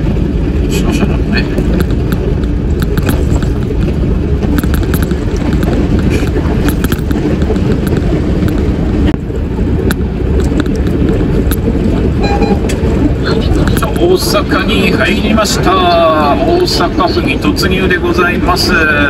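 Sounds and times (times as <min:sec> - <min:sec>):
truck engine and tyre rumble: 0:00.0 - 0:19.0
faint clicks and rattles: 0:00.1 - 0:12.0.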